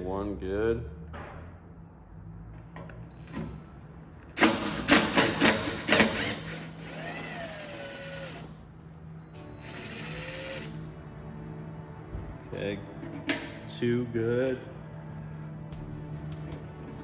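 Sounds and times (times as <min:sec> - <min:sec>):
power driver motor whirring: 0:06.0 - 0:08.6, 0:09.6 - 0:10.8.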